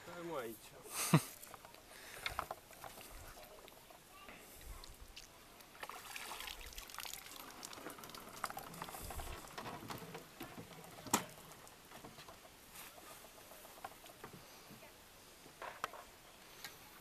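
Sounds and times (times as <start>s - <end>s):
water dripping from net: 5.1s - 8.7s.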